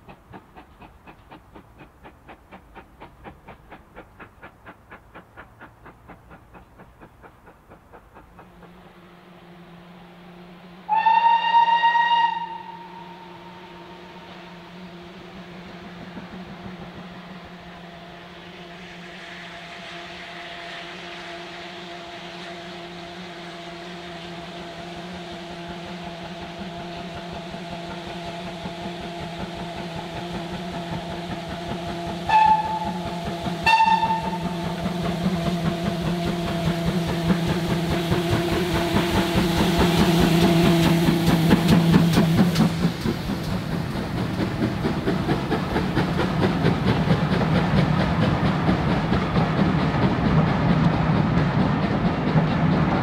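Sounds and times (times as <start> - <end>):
steam train running: 0.0 - 53.0
train whistle toots: 10.8 - 14.8, 32.2 - 35.0.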